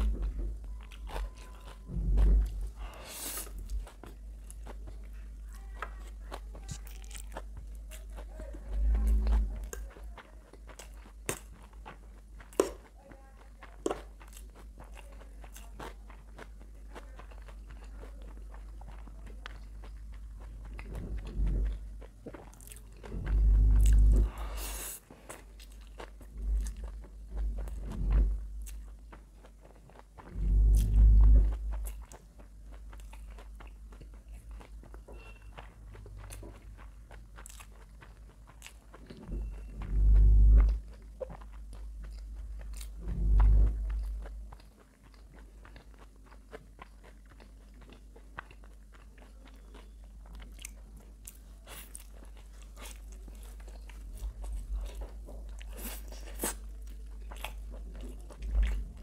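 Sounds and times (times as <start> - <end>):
chewing noodles: 0.0 - 59.0
loud deep thumps: 23.2 - 24.4, 30.3 - 31.8, 42.9 - 44.2.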